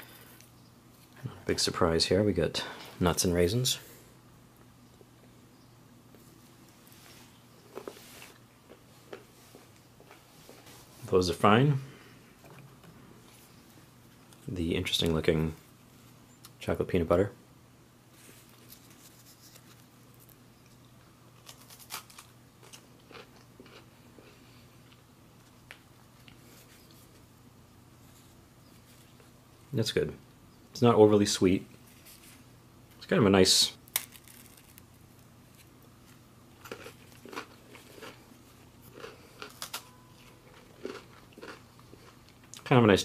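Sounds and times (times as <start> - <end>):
crisp cracker crunching: 21.3 - 27.3, 33.8 - 42.7.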